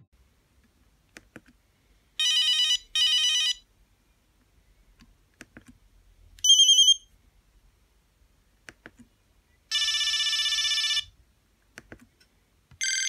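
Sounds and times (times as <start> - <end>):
trilling phone ring: 9.7 - 11.1, 12.8 - 13.0.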